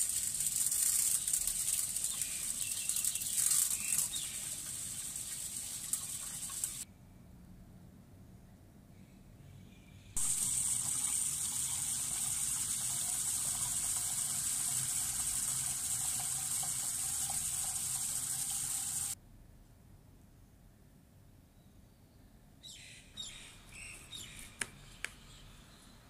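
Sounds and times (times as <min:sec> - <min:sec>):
tap water pouring into a pot: 0:00.0 - 0:06.8, 0:10.2 - 0:19.2.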